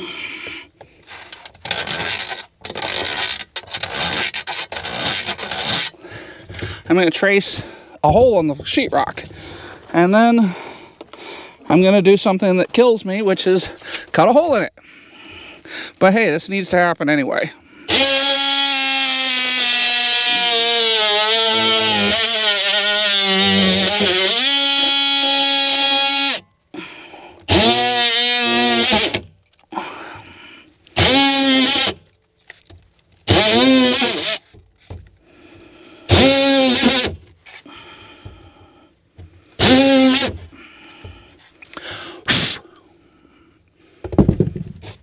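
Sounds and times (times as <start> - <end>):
oscillating multi-tool cutting drywall: 1.6 - 6.0, 17.9 - 26.4, 27.4 - 29.3, 30.9 - 32.0, 33.3 - 35.0, 36.1 - 37.2, 39.6 - 40.5.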